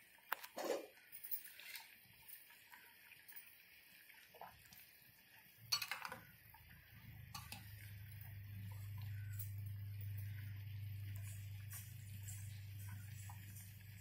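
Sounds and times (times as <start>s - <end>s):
syrup bubbling: 2.1s - 14.0s
spoon clinking against pot: 5.7s - 6.2s, 7.3s - 7.7s
low hum: 6.7s - 14.0s.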